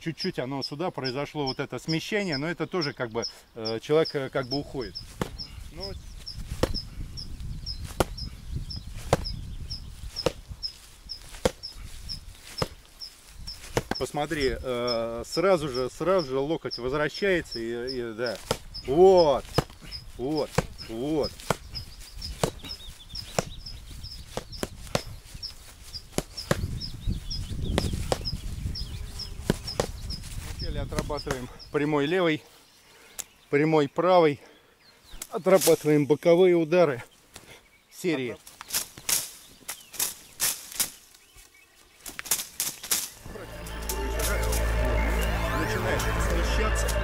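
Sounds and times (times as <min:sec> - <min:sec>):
punches landing with sharp slaps: 0:05.1 - 0:05.4, 0:06.5 - 0:06.8, 0:07.9 - 0:08.2, 0:09.0 - 0:09.3, 0:10.2 - 0:10.4, 0:11.3 - 0:11.6, 0:12.6 - 0:12.8, 0:13.7 - 0:14.1, 0:18.4 - 0:18.7, 0:19.5 - 0:19.8, 0:20.4 - 0:20.8, 0:21.4 - 0:21.7, 0:22.4 - 0:22.7, 0:23.3 - 0:23.6, 0:24.3 - 0:25.1, 0:27.7 - 0:28.3
fists slapping leaves: 0:05.1 - 0:05.5, 0:06.4 - 0:06.9, 0:07.8 - 0:09.4, 0:10.0 - 0:14.3, 0:18.2 - 0:28.6, 0:29.4 - 0:31.5, 0:38.4 - 0:45.2.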